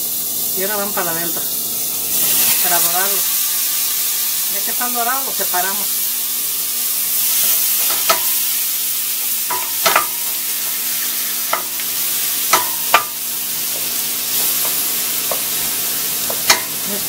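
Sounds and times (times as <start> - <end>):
shrimp sizzling in butter: 0.0 - 17.0
wooden spoon knocking on pot: 12.5 - 15.5.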